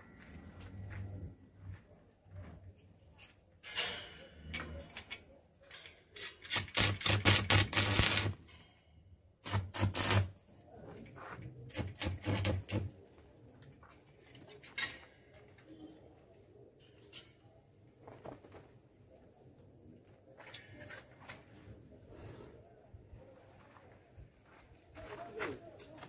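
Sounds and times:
arc welding crackle: 6.5s - 8.4s, 9.4s - 10.3s, 11.7s - 12.8s.

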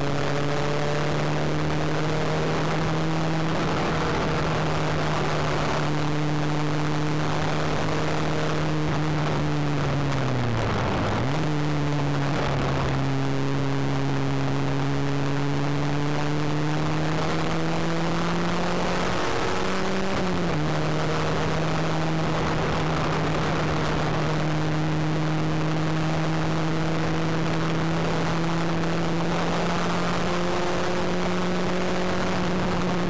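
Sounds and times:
car engine pulling hard: 0.0s - 33.0s
road and wind noise: 0.0s - 33.0s.

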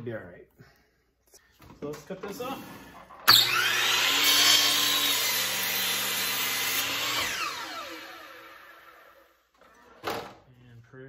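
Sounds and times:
miter saw cutting a log: 3.3s - 9.3s
saw blade winding down whine: 3.3s - 9.4s.

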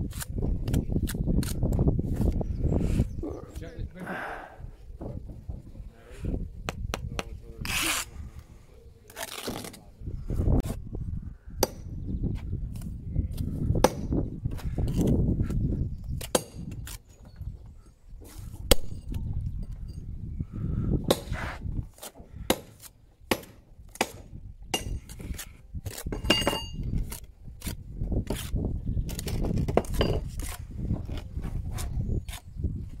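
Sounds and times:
trowel scraping mortar: 7.6s - 8.2s, 21.2s - 22.9s, 27.0s - 32.6s
stone and steel clinks: 26.2s - 26.8s.

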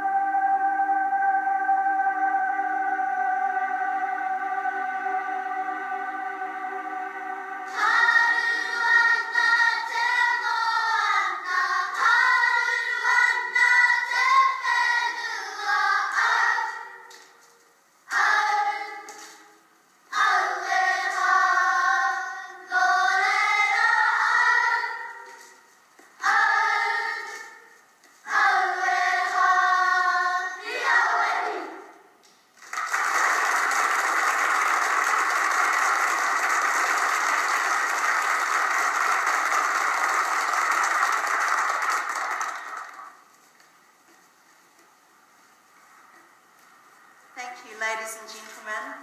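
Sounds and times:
children singing in unison: 0.0s - 17.3s, 18.1s - 25.6s, 26.2s - 32.0s.

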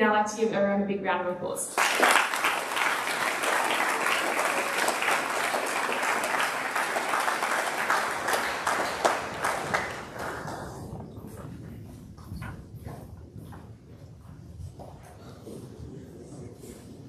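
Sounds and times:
audience applauding: 1.8s - 11.4s.

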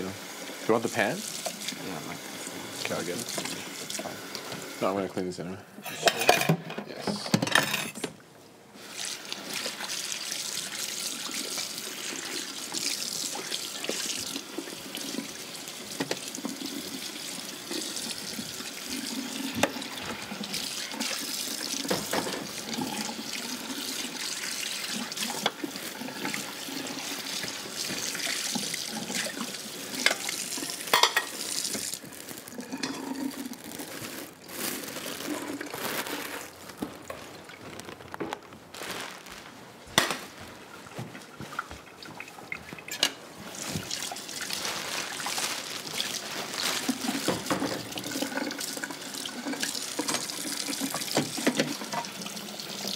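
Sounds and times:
tap water running into sink: 0.0s - 4.8s, 8.8s - 32.0s, 41.5s - 44.6s, 46.8s - 52.9s
dishes clinking: 5.8s - 8.1s, 30.9s - 31.4s.

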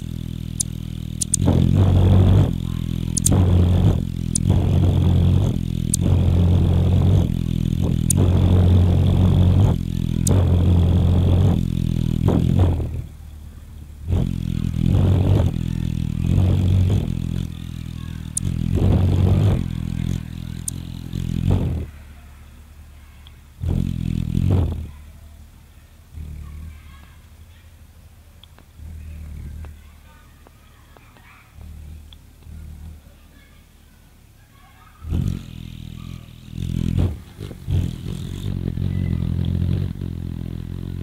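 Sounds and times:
faint high ticks: 0.0s - 1.5s, 3.1s - 3.4s, 5.6s - 6.1s, 28.4s - 29.8s, 39.3s - 39.6s
hummingbird wings buzzing: 0.0s - 33.4s, 34.9s - 41.0s.

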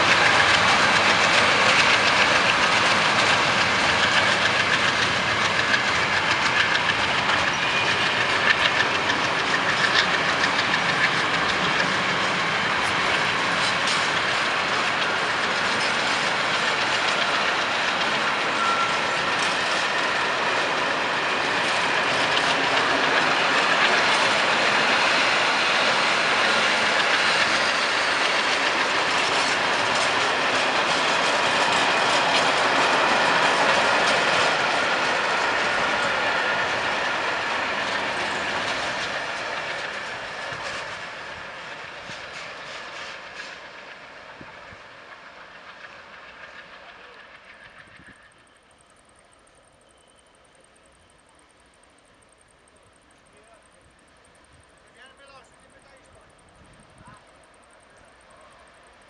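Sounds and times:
wheels clicking over rail joints: 0.0s - 43.6s
steel wheels rumbling on rail: 0.0s - 59.0s.

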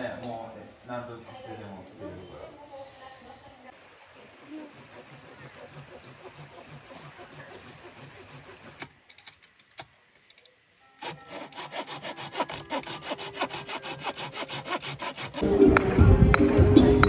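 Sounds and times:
handsaw cutting wood: 4.2s - 8.9s, 11.0s - 15.4s.

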